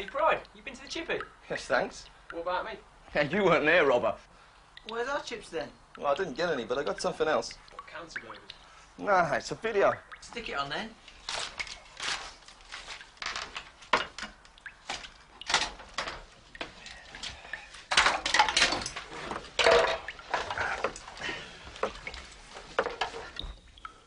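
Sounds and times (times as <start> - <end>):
rustling: 11.0 - 14.2
knocks and clatters: 13.2 - 16.8, 17.9 - 21.0, 21.8 - 23.5.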